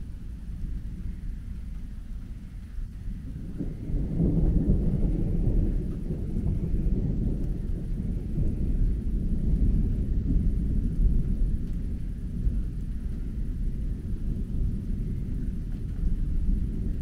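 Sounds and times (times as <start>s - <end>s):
distant thunder rumbling: 0.0s - 17.0s.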